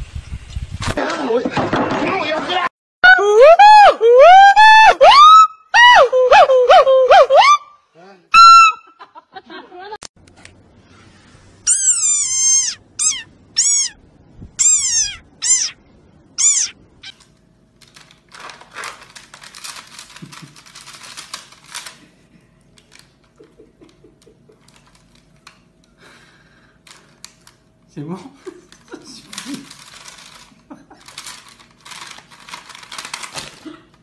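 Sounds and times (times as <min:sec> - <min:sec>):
frog squeaking: 0:11.7 - 0:14.0, 0:14.6 - 0:15.8, 0:16.4 - 0:17.2.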